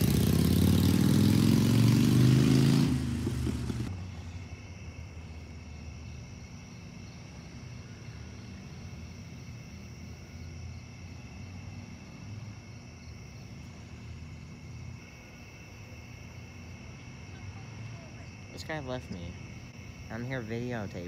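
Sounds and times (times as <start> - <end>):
crickets and night insects: 0.0 - 21.0.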